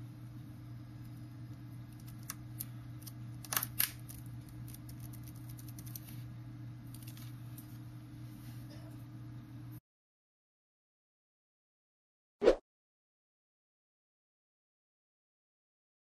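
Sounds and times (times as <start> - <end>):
steady low hum: 0.0 - 9.8.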